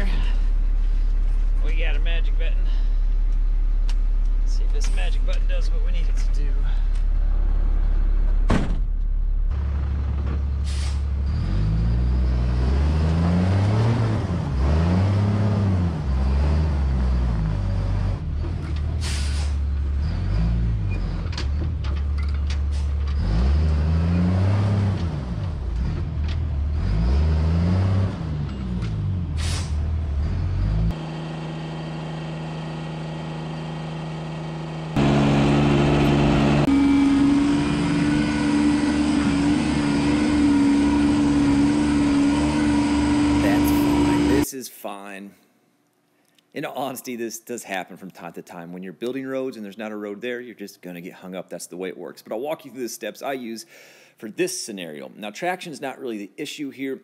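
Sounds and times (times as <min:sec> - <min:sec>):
diesel truck engine revving: 0:09.3 - 0:21.8, 0:22.6 - 0:44.5
air brake hisses: 0:10.6 - 0:11.1, 0:19.0 - 0:19.6, 0:29.4 - 0:29.8.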